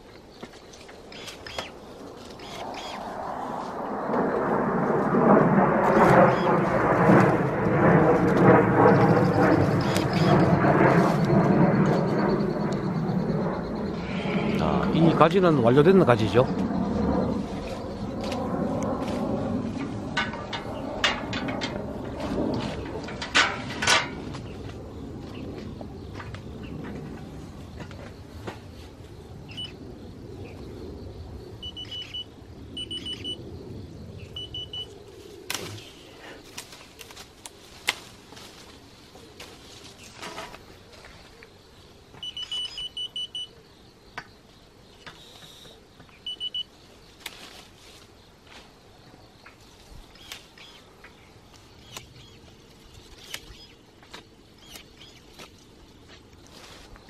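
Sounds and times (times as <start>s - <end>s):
leaves rustling: 17.3s - 20.0s, 34.9s - 41.4s, 47.0s - 49.0s, 49.6s - 57.0s
rapid electronic beeps: 31.6s - 33.4s
pruning shears snipping: 35.5s - 35.8s
twigs snapping: 35.5s - 38.8s, 47.2s - 47.7s, 51.5s - 52.2s, 53.2s - 55.7s.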